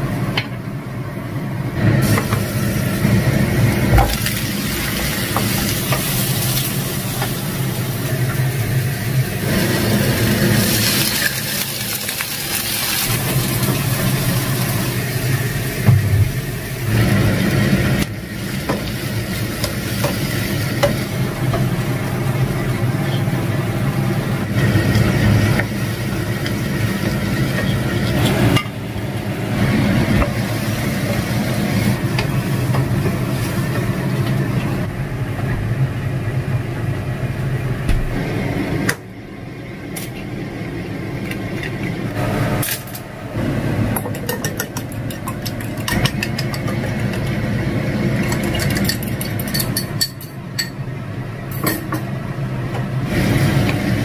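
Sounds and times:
oil sizzling in a wok: 1.8 - 34.9, 53.0 - 54.0
steady low hum: 13.1 - 54.0.

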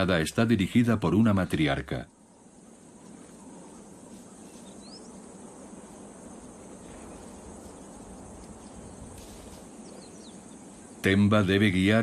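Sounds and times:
high-pitched insect chorus: 0.0 - 12.0
low background noise: 0.0 - 12.0
rising bird chirp: 2.1 - 11.0.

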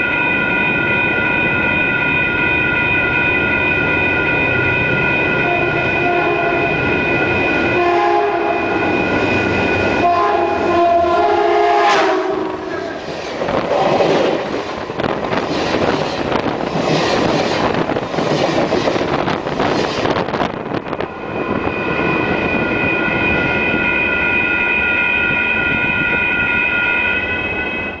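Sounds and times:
ringing bells: 0.0 - 7.8, 8.5 - 11.0, 20.9 - 28.0
train passing overhead: 0.0 - 28.0
wind gusts: 0.0 - 28.0.

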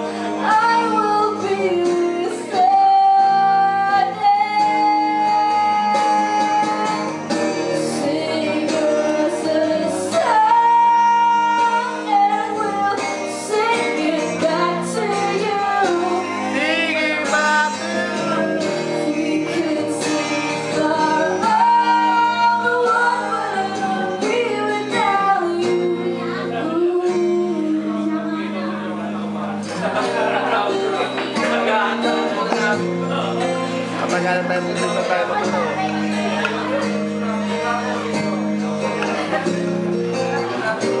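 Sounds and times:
woman singing into a microphone: 0.0 - 29.0, 29.7 - 32.8
guitar accompaniment: 0.0 - 41.0.

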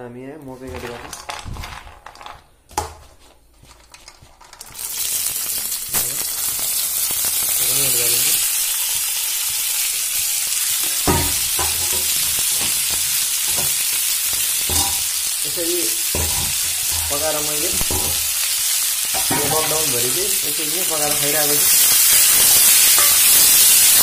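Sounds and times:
knocks of pouring and stirring: 0.6 - 8.6, 16.1 - 23.8
kernels sizzling in hot oil: 3.6 - 24.0.

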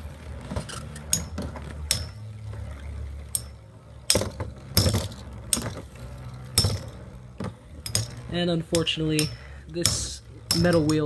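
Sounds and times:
spinning tops clinking together: 3.2 - 11.0.

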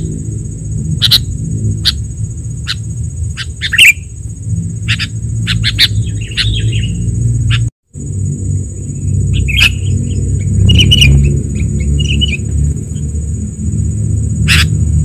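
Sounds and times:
high-pitched hiss: 0.0 - 14.9
low rumble: 0.0 - 15.0
bird chatter: 0.9 - 7.7, 8.9 - 13.1, 14.3 - 14.8
bird chirps: 1.0 - 7.7, 8.8 - 13.1, 14.4 - 14.8.

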